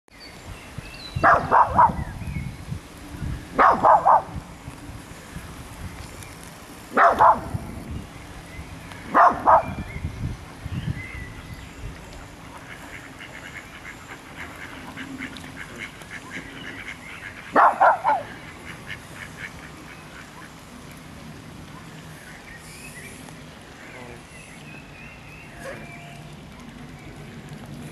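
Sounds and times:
small dog barking: 1.2 - 2.0, 3.6 - 4.3, 6.9 - 7.5, 9.1 - 9.8, 17.6 - 18.4
ducks quacking faintly: 12.1 - 20.8.

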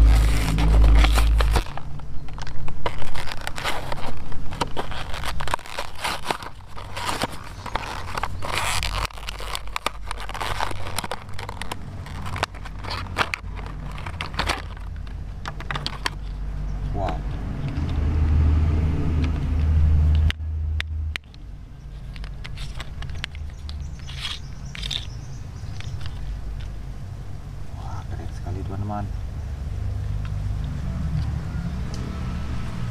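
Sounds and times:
low rumble: 0.0 - 2.4
cardboard tearing: 0.0 - 16.3
plastic blister pack crinkling: 0.0 - 16.5, 21.2 - 26.8.

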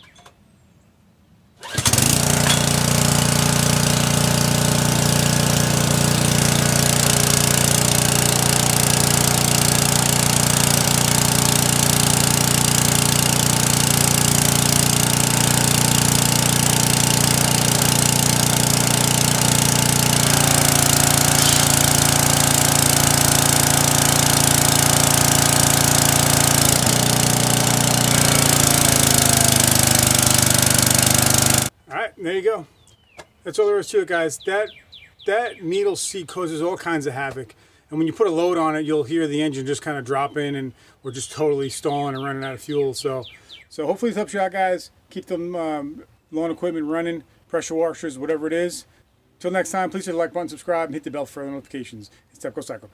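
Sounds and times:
pressure washer engine running: 1.6 - 31.7
water spray hissing: 2.9 - 31.7.

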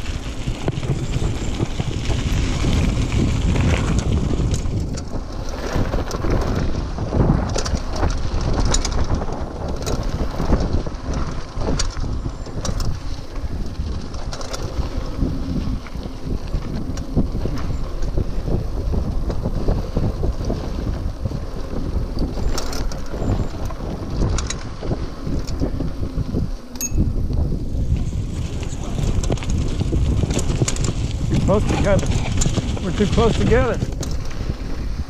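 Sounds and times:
bike rattles and clicks: 0.0 - 35.0
tyres rumbling over dirt: 0.0 - 35.0
wind buffeting microphone: 0.0 - 35.0.

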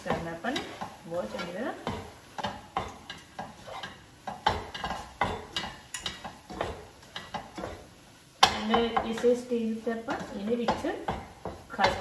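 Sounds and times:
spatula scraping iron pan: 0.0 - 9.3.

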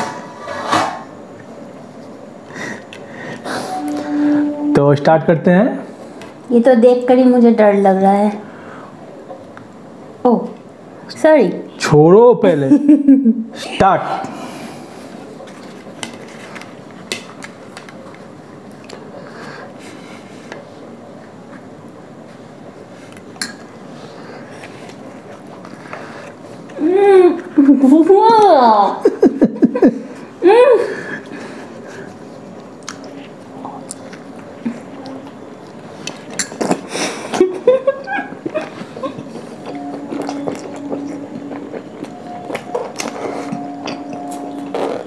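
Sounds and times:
people chewing: 1.4 - 4.6, 14.2 - 27.6, 30.9 - 45.0
spoon tapping glass bowls: 43.5 - 44.7.

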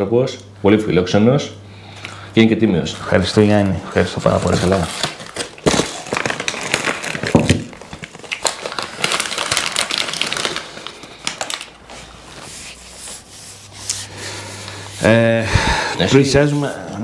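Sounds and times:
food wrapper crinkling: 3.0 - 12.5.

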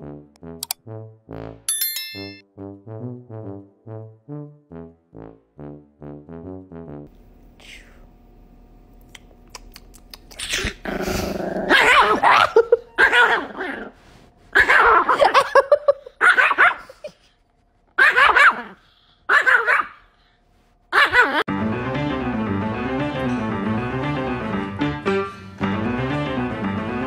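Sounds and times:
small dog barking and growling: 10.6 - 15.4, 16.2 - 17.1, 18.0 - 20.1, 20.9 - 21.4.

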